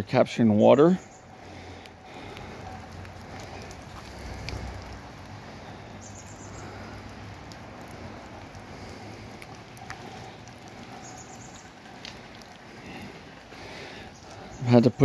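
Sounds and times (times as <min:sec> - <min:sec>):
rain hissing on a garden: 0:00.0 - 0:15.0
dripping clicks: 0:01.0 - 0:15.0.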